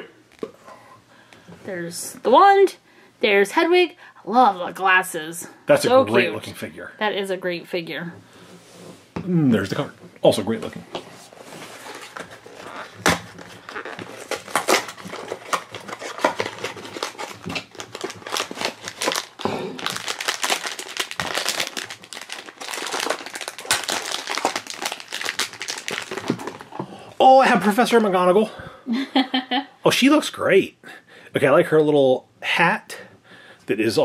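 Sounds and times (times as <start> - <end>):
foil bag crinkling: 11.3 - 26.8.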